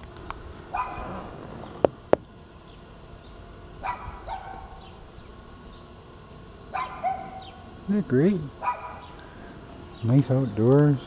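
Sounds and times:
dog barking: 0.7s - 1.2s, 3.8s - 4.8s, 6.7s - 7.6s, 8.6s - 9.1s.

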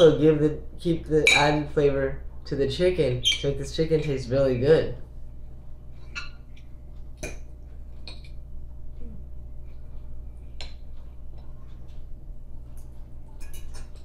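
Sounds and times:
fork clinking on ceramic plate: 12.8s - 14.0s.

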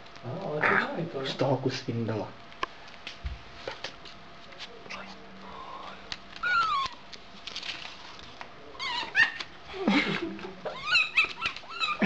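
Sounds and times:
fox whining squeal: 6.4s - 7.0s, 8.8s - 9.4s, 10.7s - 12.0s.

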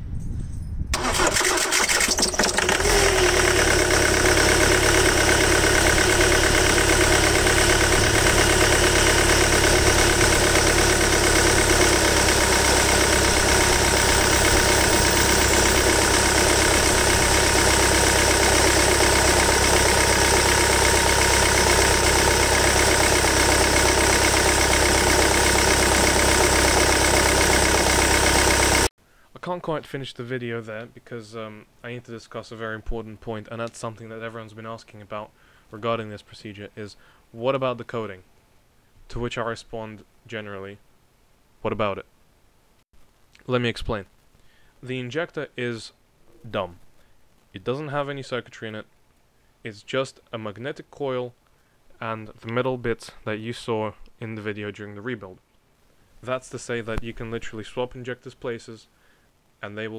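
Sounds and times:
diesel engine idling: 1.0s - 28.9s
starter motor cranking: 1.0s - 28.9s.

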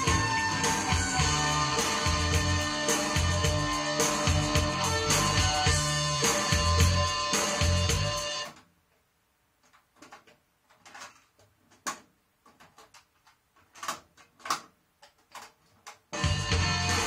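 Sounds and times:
music from hi-fi: 0.0s - 8.6s, 16.1s - 17.0s.

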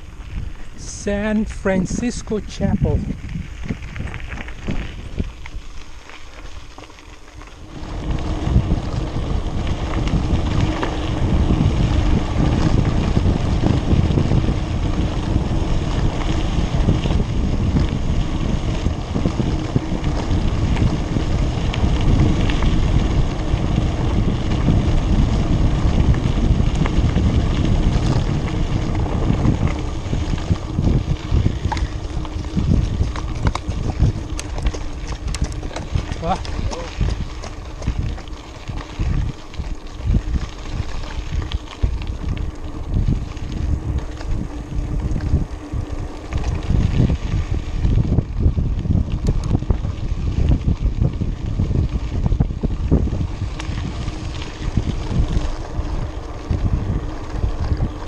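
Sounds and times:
bike tyres rumbling on dirt: 0.0s - 58.0s
wind buffeting microphone: 0.0s - 58.0s.

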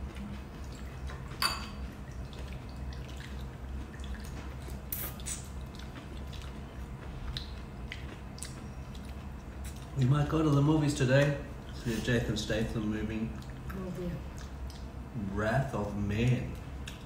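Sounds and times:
steady low hum: 0.0s - 17.0s
spoons clinking on bowls: 1.4s - 1.8s.

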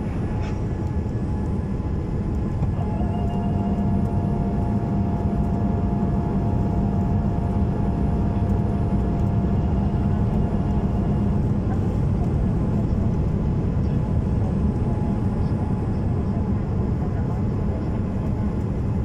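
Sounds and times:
faint steady hum: 0.0s - 11.8s
airplane cabin engine roar: 0.0s - 19.0s.

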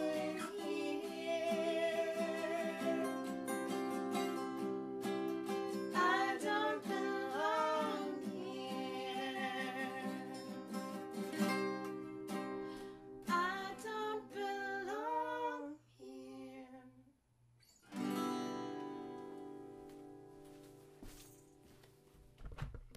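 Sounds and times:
person singing: 0.0s - 3.6s, 5.9s - 10.7s, 13.2s - 17.0s
acoustic guitars strumming: 0.0s - 13.9s, 17.9s - 21.8s.

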